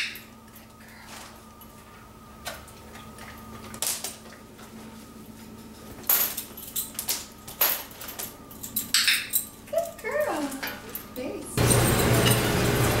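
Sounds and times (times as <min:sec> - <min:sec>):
metal leash clip clinking on tile: 0:06.1 - 0:12.5.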